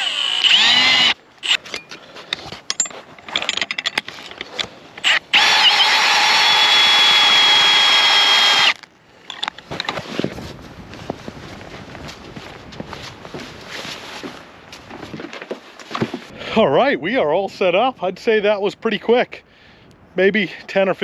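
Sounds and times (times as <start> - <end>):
cordless drill: 0.0 - 1.6, 5.0 - 8.8.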